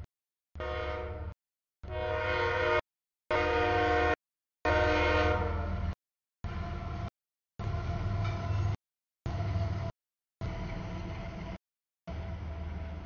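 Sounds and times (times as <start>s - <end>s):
train air horn blasts: 0.6s - 5.8s
locomotive engine low rumble: 5.6s - 13.0s.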